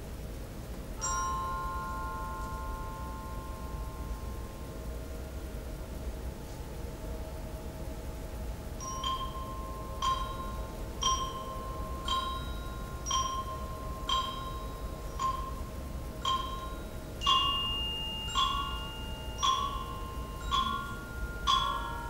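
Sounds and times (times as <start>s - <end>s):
mallet percussion notes: 1.0s - 4.4s, 8.8s - 22.0s
long high tone: 1.0s - 22.0s.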